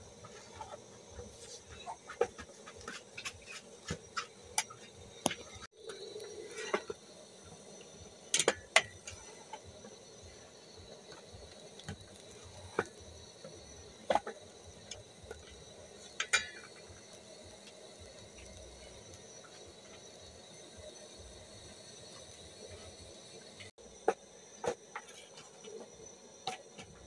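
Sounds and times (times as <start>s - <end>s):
stick stirring stiff dough: 0.2s - 7.0s.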